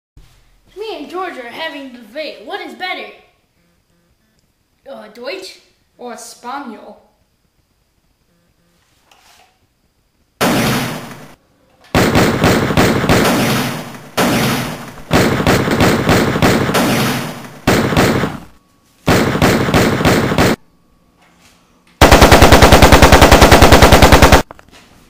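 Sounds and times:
machine-gun fire bursts: 10.4 - 11.4, 12.0 - 18.5, 19.1 - 20.6, 22.0 - 24.5.

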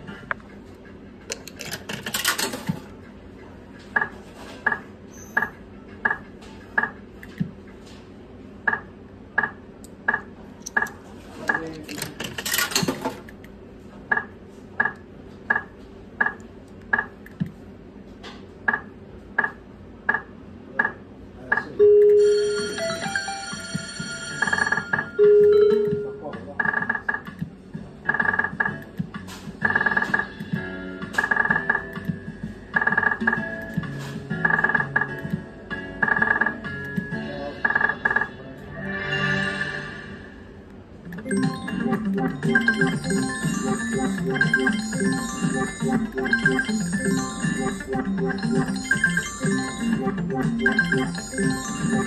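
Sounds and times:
slot machine winning jingle: 21.8 - 26.2, 41.1 - 52.0
slot machine beeps: 21.8 - 26.9, 41.1 - 52.0.

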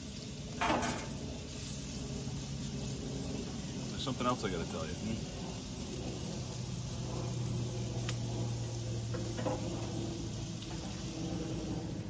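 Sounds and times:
steady low hum: 0.0 - 12.0
clicks and taps at a gas grill: 0.5 - 1.2, 8.0 - 9.9.

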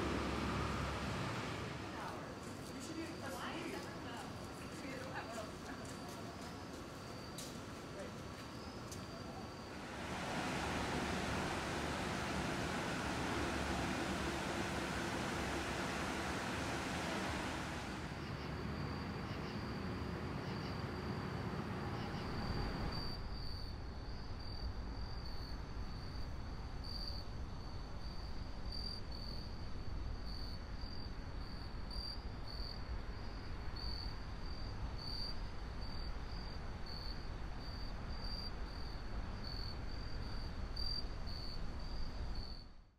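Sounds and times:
steady hiss: 0.0 - 23.4
crickets chirping: 0.0 - 42.8
low rumble: 9.7 - 23.2.

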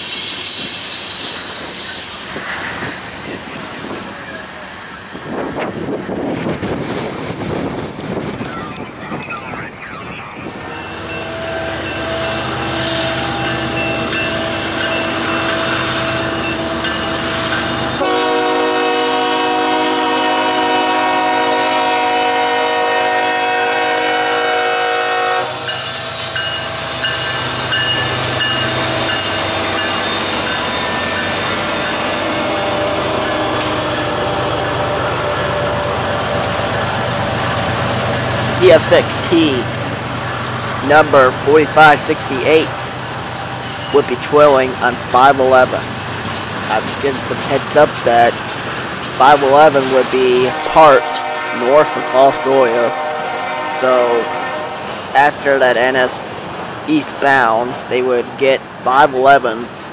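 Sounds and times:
wheels clacking on rails: 0.0 - 52.0
train rumbling past: 0.0 - 59.9
train horn: 10.7 - 36.7, 50.3 - 55.0.

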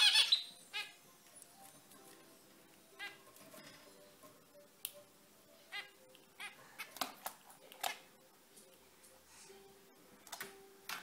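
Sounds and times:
finches calling: 0.0 - 1.0.

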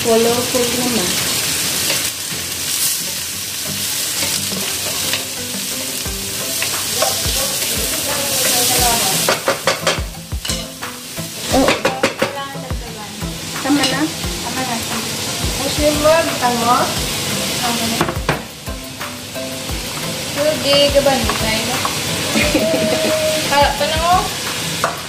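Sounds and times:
vegetables sizzling in a frying pan: 0.0 - 25.0
spatula scraping a pan: 3.9 - 5.3.

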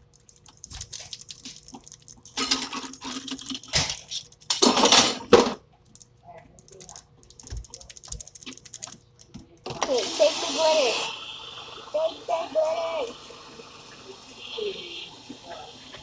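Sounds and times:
water sounds: 9.8 - 16.0.

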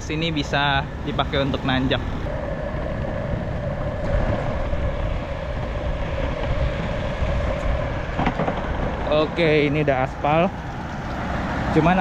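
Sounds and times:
electric motor whine: 1.2 - 9.0
skateboard wheels rumbling on paving: 1.2 - 12.0.

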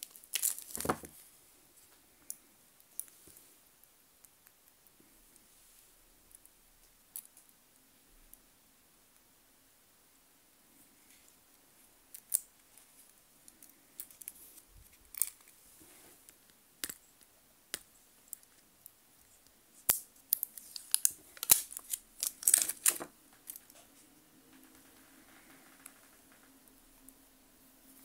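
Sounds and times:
plastic film peeling crinkles: 0.0 - 1.1, 19.8 - 23.8.

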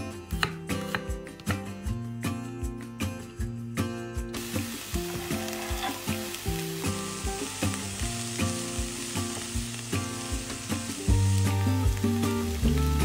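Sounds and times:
background music with steady beat: 0.0 - 13.0
food sizzling in a pan: 4.4 - 13.0.

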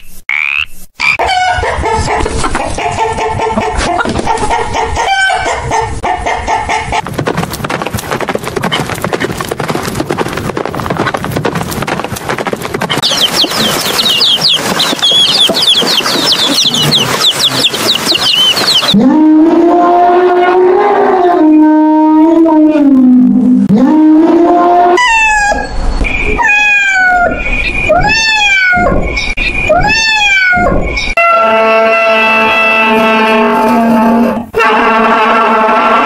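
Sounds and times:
horse hoofbeats: 6.9 - 19.0
high rapid chirping: 12.9 - 19.0
rooster calling: 13.0 - 19.9, 26.4 - 27.4.

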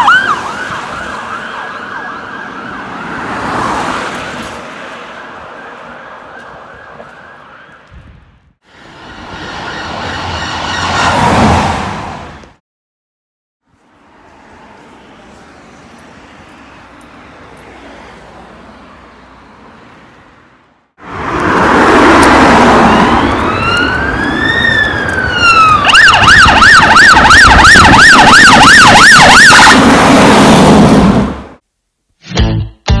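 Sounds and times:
emergency vehicle siren: 0.0 - 8.2, 8.8 - 12.3, 21.1 - 31.4
road traffic noise: 0.0 - 12.6, 13.6 - 31.6.

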